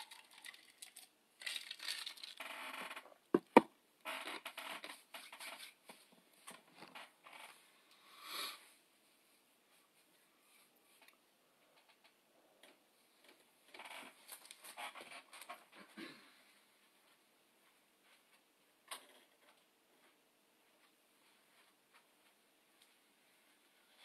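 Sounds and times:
rustling and scraping: 0:01.6 - 0:07.7
sharp knocks: 0:03.4 - 0:03.7.

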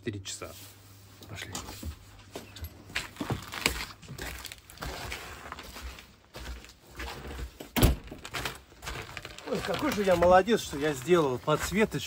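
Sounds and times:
footsteps: 0:00.5 - 0:12.0
door opening: 0:07.3 - 0:10.0
nylon jacket rustling: 0:08.2 - 0:12.0.

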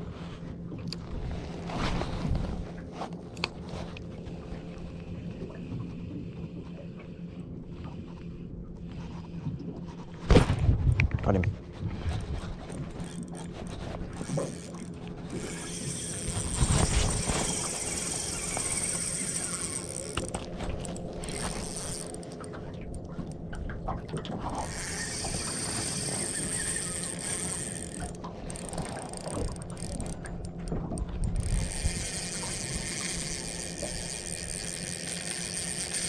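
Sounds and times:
fishing reel ratchet clicking: 0:12.6 - 0:23.4, 0:24.5 - 0:36.0.

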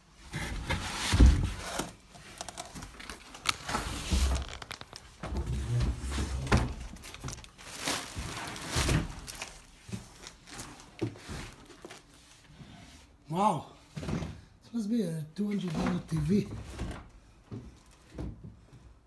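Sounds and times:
cardboard and plastic rustling: 0:00.3 - 0:12.8.

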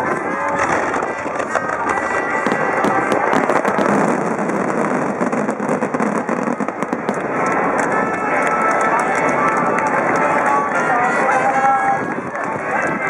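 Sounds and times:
fireworks bursting: 0:00.0 - 0:10.4.

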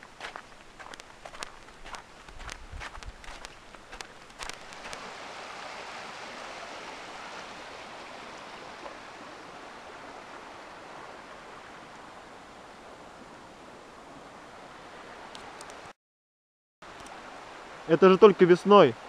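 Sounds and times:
footsteps crunching on wet snow: 0:00.0 - 0:05.1
meltwater running across road: 0:00.0 - 0:12.0.

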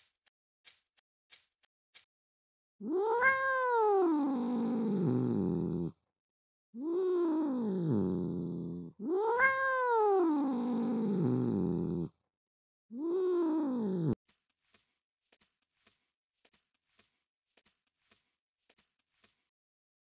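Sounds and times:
cat meowing: 0:02.8 - 0:05.4, 0:06.8 - 0:08.0, 0:09.0 - 0:11.9, 0:12.9 - 0:14.2.

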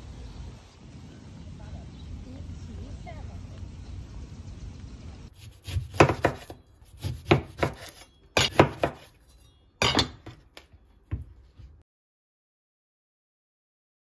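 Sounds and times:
knife cutting an orange: 0:05.4 - 0:09.4.

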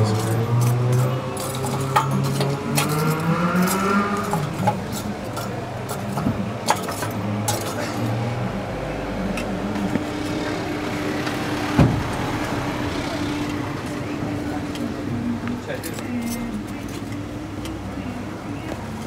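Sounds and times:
metal pots clinking and knocking: 0:00.0 - 0:08.2.

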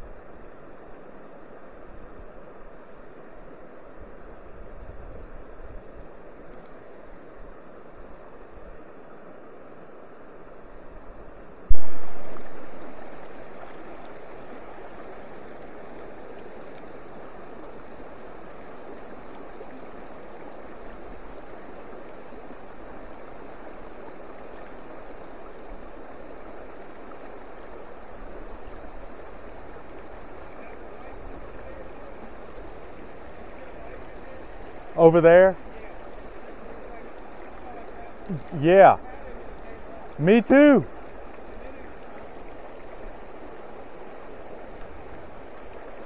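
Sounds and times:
stream rushing over stones: 0:05.4 - 0:46.0
low thump: 0:11.7 - 0:12.8.

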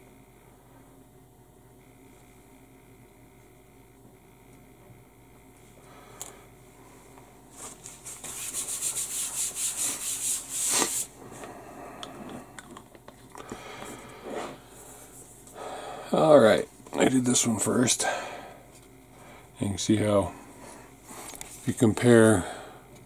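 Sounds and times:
paper towel rubbing on mat: 0:07.5 - 0:11.2.

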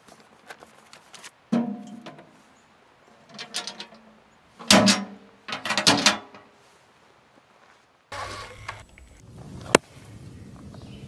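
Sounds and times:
metal lid clanking: 0:01.5 - 0:02.4, 0:03.2 - 0:06.4.

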